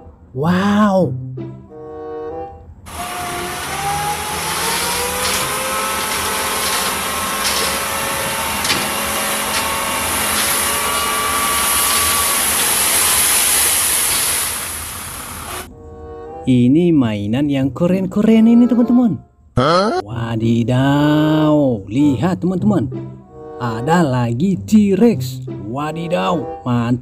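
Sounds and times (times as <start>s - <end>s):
diesel truck engine revving: 2.9s - 15.7s.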